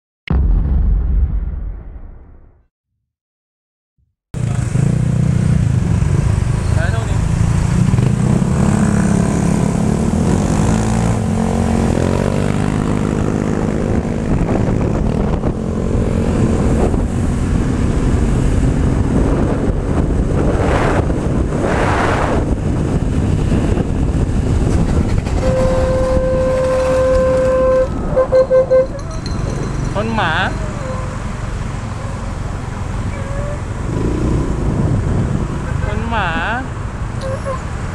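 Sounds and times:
wind rush on microphone: 0:07.8 - 0:37.9
horn long note: 0:25.4 - 0:28.9.

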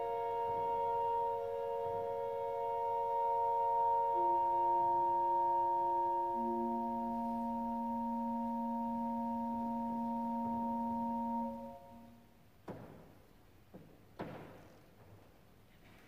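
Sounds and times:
pipe organ chord: 0:00.0 - 0:12.2
short knock: 0:12.6 - 0:14.9.

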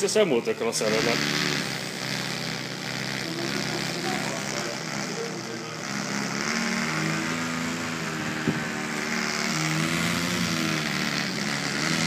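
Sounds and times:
window vibrating in wind: 0:06.5 - 0:12.0.

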